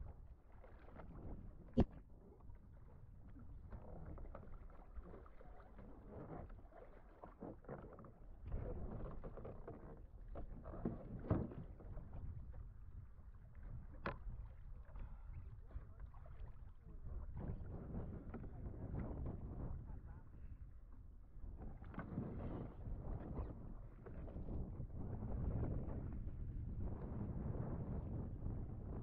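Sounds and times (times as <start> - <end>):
water sloshing against kayak hull: 0.1 - 19.5.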